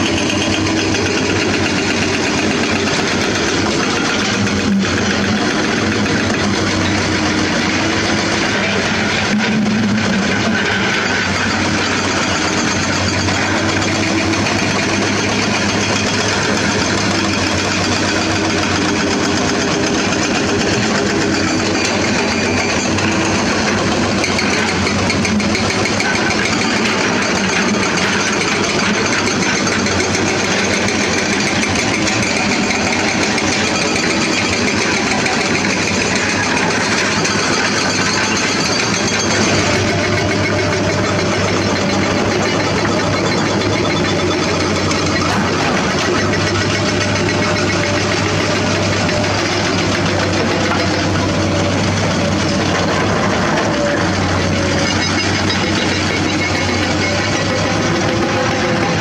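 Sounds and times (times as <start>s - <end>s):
excavator diesel engines running: 0.0s - 59.0s.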